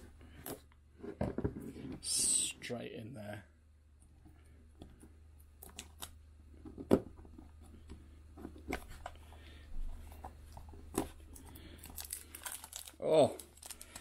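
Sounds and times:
cellophane wrapper tearing and crinkling: 11.3s - 14.0s.

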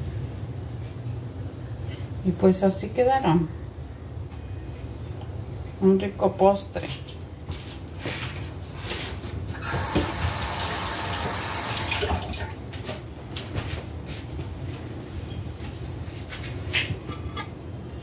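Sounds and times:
water running from tap: 9.6s - 12.6s.

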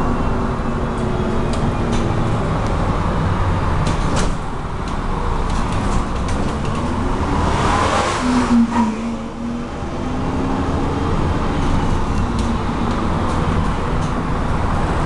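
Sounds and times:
rattles and clicks of bus body: 0.0s - 7.3s, 11.1s - 15.0s
bus engine and road noise: 0.0s - 15.0s.

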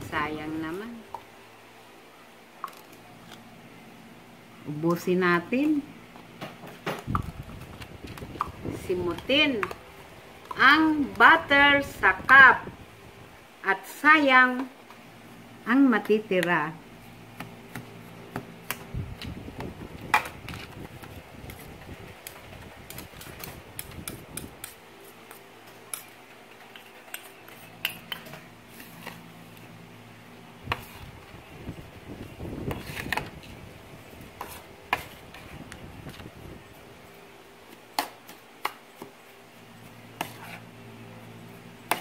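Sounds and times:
spoon scraping dry mix: 7.0s - 12.5s, 16.0s - 29.7s, 30.6s - 31.5s, 32.2s - 36.8s, 37.6s - 42.0s.

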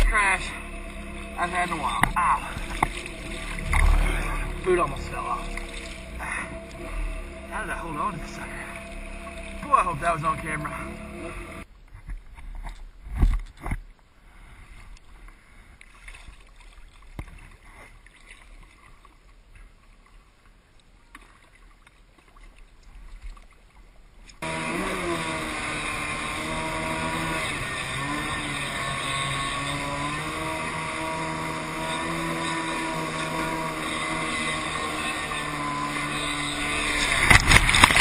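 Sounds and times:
jet ski engine revving: 0.0s - 11.7s, 24.4s - 38.0s
water splashing and sloshing: 0.0s - 38.0s.

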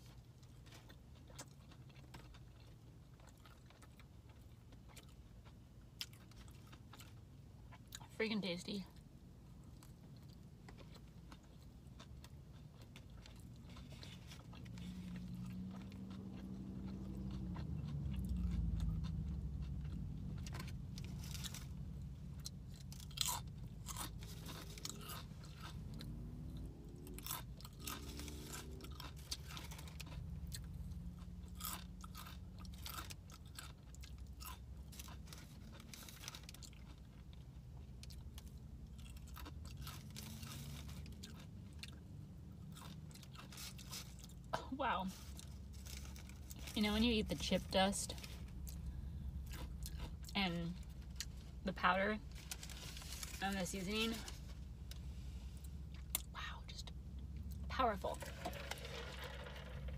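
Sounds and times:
chewing and crunching chips: 0.0s - 59.9s.

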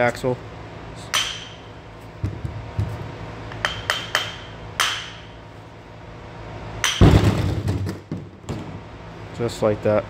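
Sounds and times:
hammer striking steel shaft: 1.1s - 1.6s.

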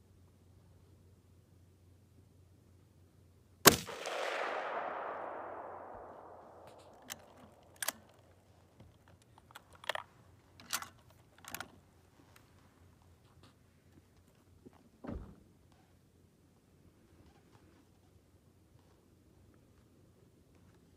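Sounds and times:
rifle shot echoing: 3.7s - 8.1s
rifle bolt clicking: 3.9s - 8.2s.

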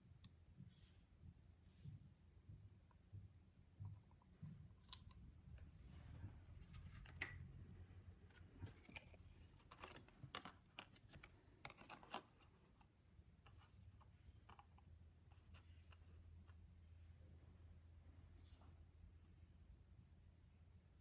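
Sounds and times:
faint low room hum: 0.0s - 21.0s
cards and paint cup clicking: 6.7s - 16.6s.

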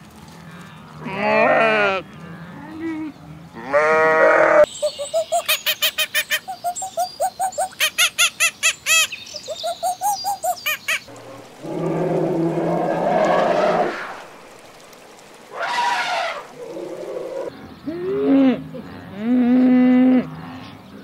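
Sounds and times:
sheep bleating: 1.0s - 2.1s, 3.6s - 4.7s
gibbon hooting calls: 4.8s - 14.4s.

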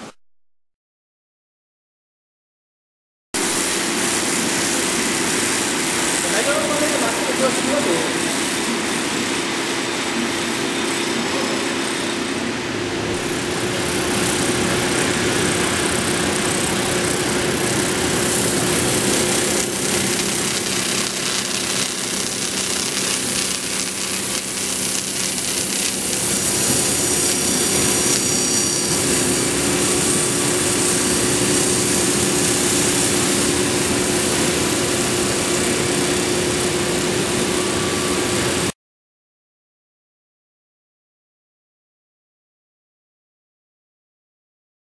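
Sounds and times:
constant machine hum: 3.5s - 38.7s
saw blade grinding stone: 16.4s - 33.6s.

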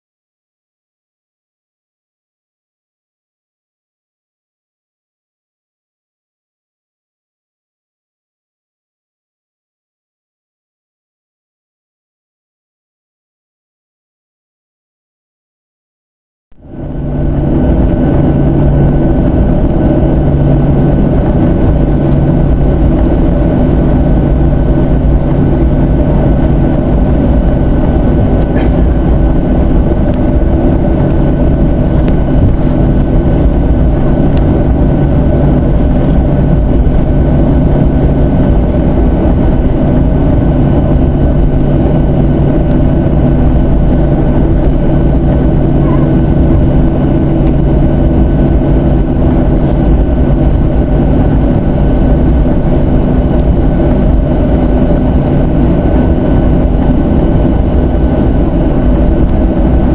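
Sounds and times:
jet engines roaring in cabin: 16.6s - 59.9s.

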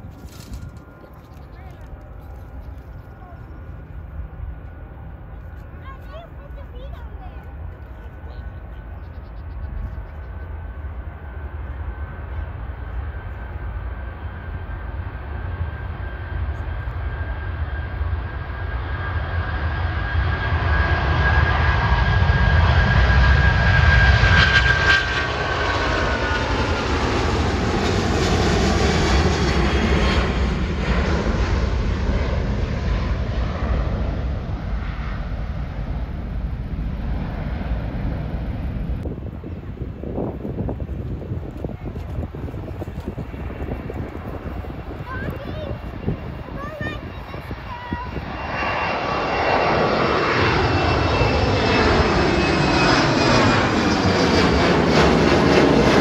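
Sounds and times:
jet airliner taking off: 0.0s - 56.0s
high fan whine: 37.7s - 52.1s.

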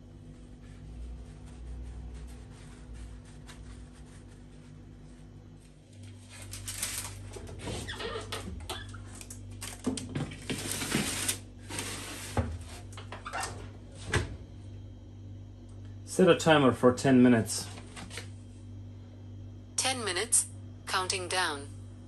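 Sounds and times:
steady low hum: 0.0s - 22.0s
paper rustling: 5.9s - 7.8s, 9.6s - 12.4s.

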